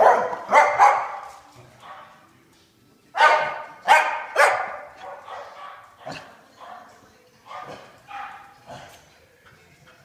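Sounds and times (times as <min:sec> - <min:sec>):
dog barking: 0:00.0 - 0:02.2, 0:03.2 - 0:08.9.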